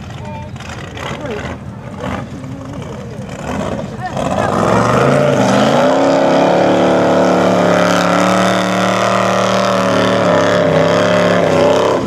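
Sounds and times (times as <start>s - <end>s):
buggy engine at high revs: 0.0s - 12.0s.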